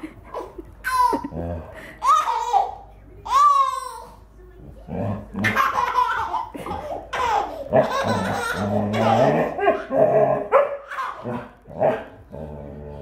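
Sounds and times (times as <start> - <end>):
baby laughing: 0.0 - 4.2, 5.4 - 11.6
dog barking: 10.5 - 11.4.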